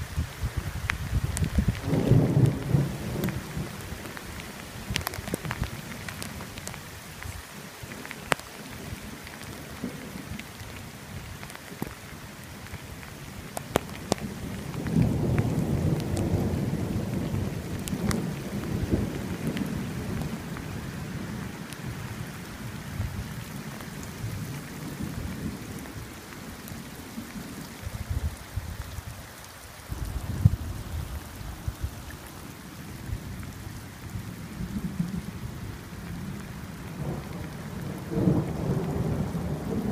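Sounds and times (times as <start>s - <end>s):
steady rain: 0.0s - 39.9s
sharp raindrop ticks: 0.8s - 20.7s, 23.1s - 39.9s
thunder rolling: 1.2s - 3.8s.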